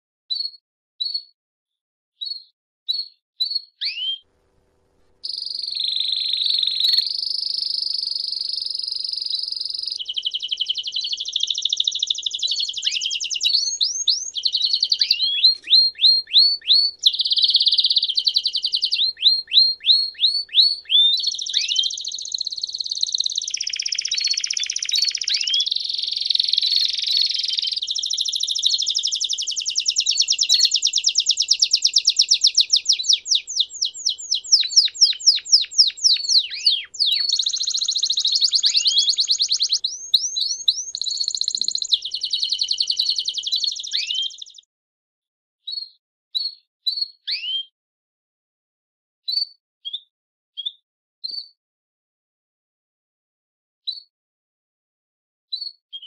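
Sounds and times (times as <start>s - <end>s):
canary singing trills: 5.2s - 44.7s.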